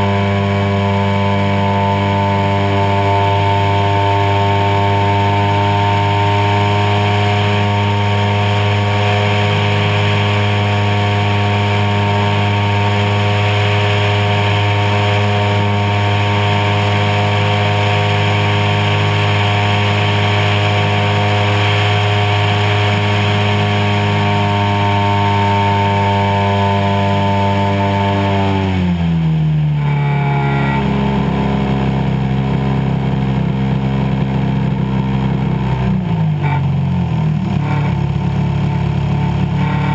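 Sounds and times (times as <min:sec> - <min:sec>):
model plane engine running: 0:00.0 - 0:36.9, 0:37.5 - 0:39.9.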